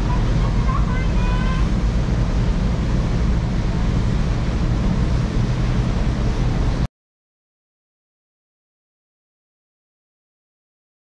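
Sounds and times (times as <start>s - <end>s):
boat engines rumbling: 0.0s - 6.9s
wake water: 0.0s - 6.9s.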